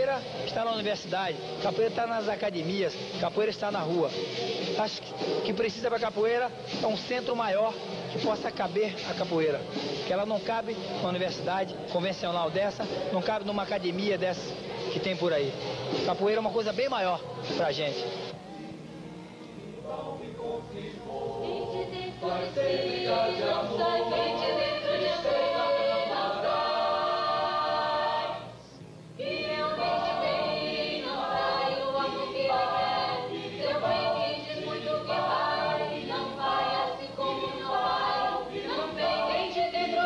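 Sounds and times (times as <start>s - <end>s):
choir singing unaccompanied: 14.4s - 28.6s, 29.2s - 40.0s.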